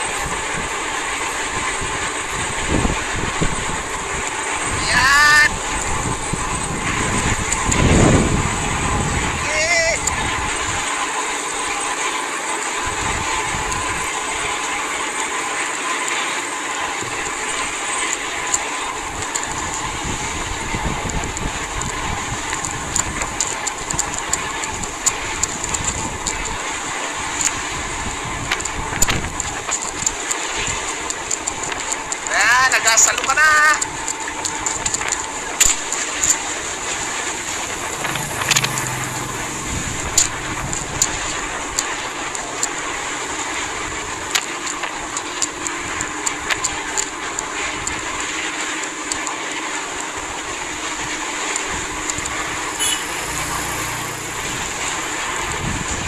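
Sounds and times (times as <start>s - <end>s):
low wind buffeting rumbles: 0.0s - 11.9s, 12.8s - 15.3s, 16.8s - 48.4s, 49.8s - 56.0s
boat engine droning: 0.0s - 56.0s
rushing water: 0.0s - 56.0s
low hum: 33.8s - 48.4s.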